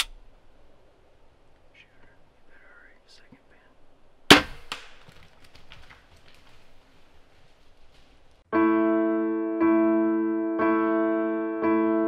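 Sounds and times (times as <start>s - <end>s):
faint background noise: 0.0s - 8.5s
slow piano chords: 8.5s - 12.0s.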